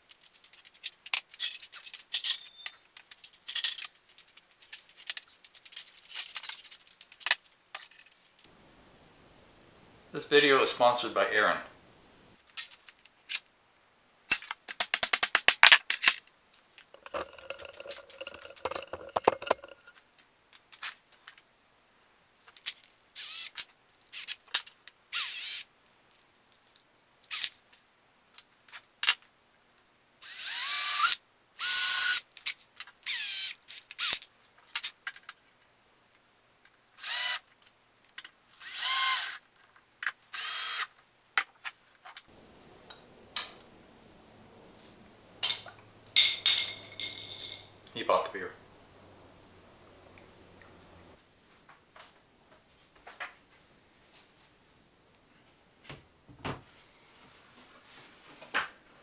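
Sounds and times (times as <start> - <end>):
small tool humming: 30.2 - 32.2, 33.1 - 34.2, 37.0 - 37.4, 38.6 - 39.4, 40.4 - 40.9
cordless drill whirring: 33.1 - 34.1, 38.6 - 39.4, 40.4 - 40.8.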